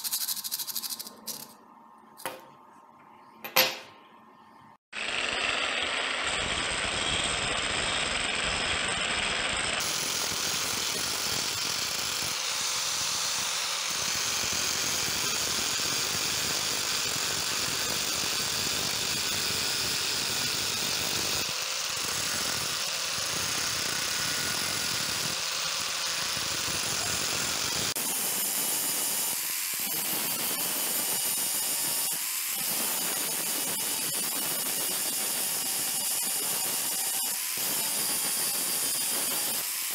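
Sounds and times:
angle grinder grinding steel blade: 0.0s - 1.6s, 20.4s - 39.9s.

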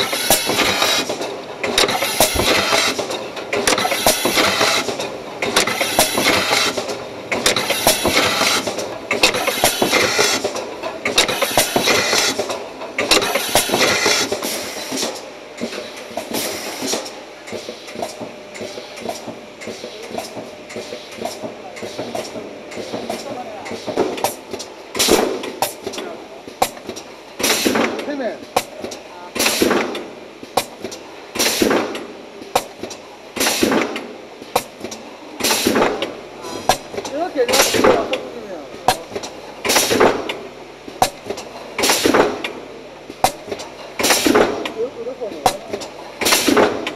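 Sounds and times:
pneumatic air hiss: 0.0s - 1.1s, 1.8s - 3.1s, 3.7s - 5.0s, 5.6s - 10.6s, 11.2s - 12.5s, 13.1s - 20.0s, 27.4s - 27.9s, 29.4s - 30.0s, 31.4s - 31.9s, 33.4s - 34.0s, 34.6s - 35.8s, 39.6s - 40.0s, 41.8s - 42.2s, 44.0s - 44.4s, 46.2s - 46.6s
machine metallic clatter: 0.0s - 38.3s, 43.2s - 46.9s
cans clinking on conveyor: 0.0s - 46.9s
compressed air hissing: 13.2s - 15.1s, 16.3s - 17.0s.

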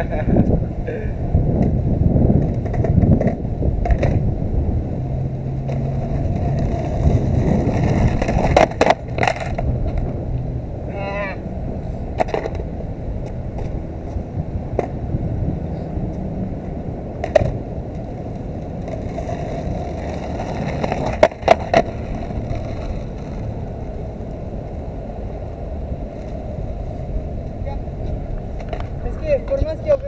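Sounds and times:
skateboard wheels rolling on concrete: 0.0s - 30.0s
skateboard sharp clacks: 2.4s - 4.3s, 5.6s - 10.1s, 12.1s - 13.8s, 17.2s - 24.4s, 27.8s - 29.8s.

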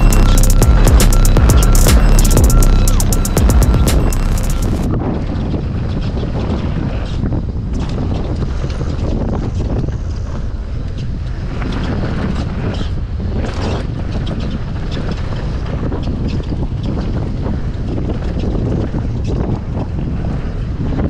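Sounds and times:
wind buffeting microphone: 4.9s - 21.0s.

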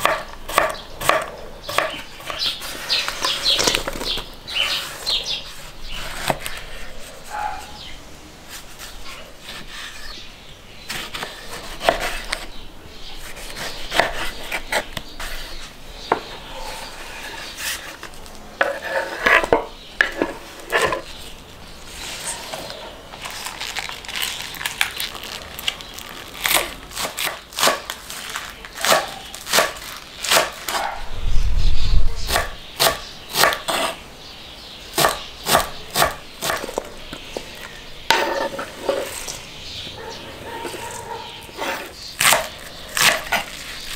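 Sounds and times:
fast chopping of herbs: 0.0s - 6.7s, 13.2s - 15.5s, 26.4s - 30.9s, 32.3s - 34.0s, 34.9s - 36.9s, 40.6s - 43.9s
knife cutting on wooden board: 13.2s - 15.5s, 32.2s - 34.0s, 35.0s - 36.8s, 40.4s - 43.9s
low rumble: 31.0s - 32.3s.

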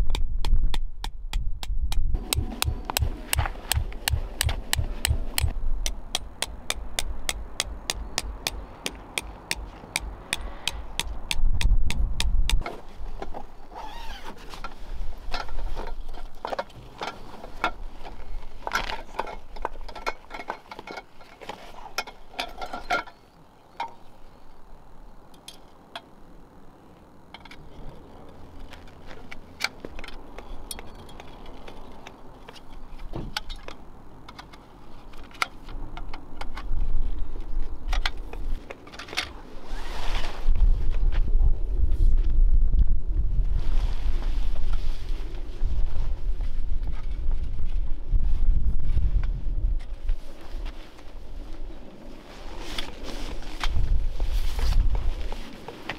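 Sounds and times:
mallet striking metal tent peg: 0.0s - 12.6s
metal tent pole handled: 0.0s - 23.2s
tent gear clicking and rattling: 2.2s - 11.4s, 12.2s - 23.2s.

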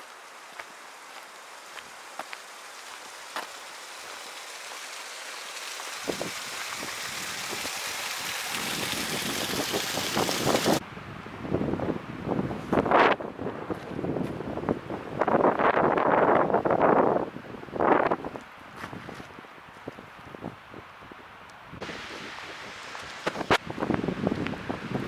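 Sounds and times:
steady hiss: 0.0s - 10.8s, 21.8s - 25.0s
wind gusting on microphone: 6.0s - 25.0s.

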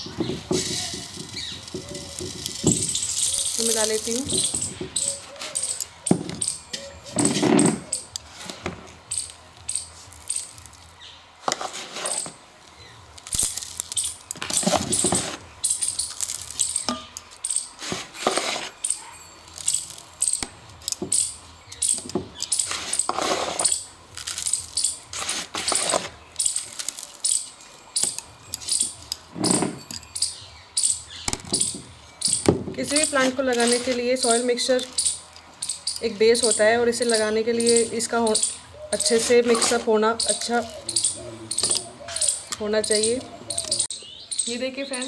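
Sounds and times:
soil poured and rubbed: 0.3s - 4.3s, 10.0s - 12.4s, 17.7s - 18.9s, 22.6s - 27.2s
bangles clinking: 0.7s - 8.2s, 9.0s - 11.0s, 13.1s - 44.5s.

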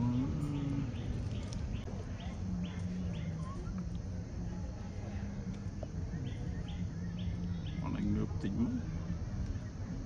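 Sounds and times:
bird chirping: 0.0s - 3.8s, 5.9s - 8.7s
low steady hum: 0.0s - 10.0s.

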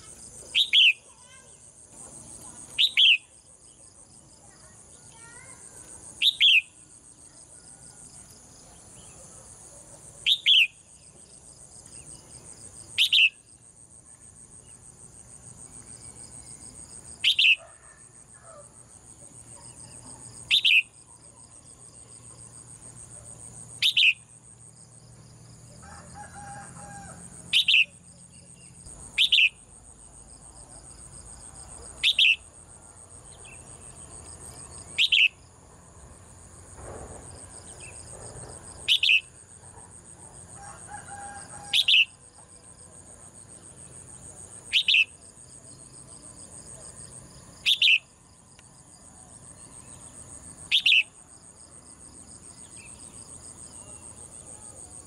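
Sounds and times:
bird chirping calls: 0.0s - 3.4s, 5.2s - 6.8s, 10.2s - 10.8s, 12.9s - 13.5s, 17.2s - 17.7s, 19.6s - 21.0s, 23.8s - 24.4s, 27.5s - 29.6s, 32.0s - 32.5s, 34.7s - 35.4s, 38.8s - 39.3s, 41.7s - 42.2s, 44.7s - 45.2s, 47.6s - 48.1s, 50.7s - 51.1s
high insect drone: 0.0s - 55.0s.

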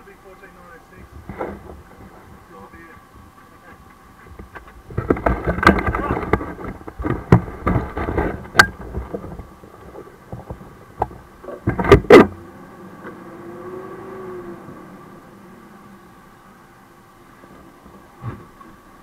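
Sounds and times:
camera knocks and thumps: 4.3s - 9.5s.

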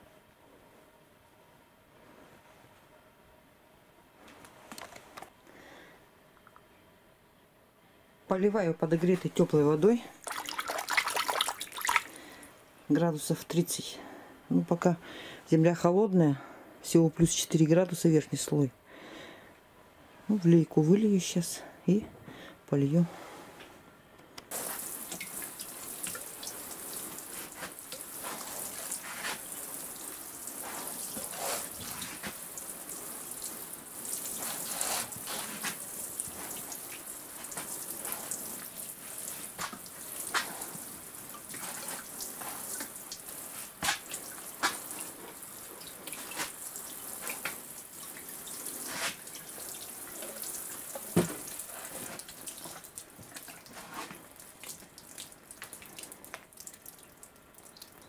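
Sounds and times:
small splashes and knocks: 10.2s - 12.2s, 24.5s - 32.4s, 34.2s - 58.0s
water sprinkling onto soil: 24.5s - 58.0s.

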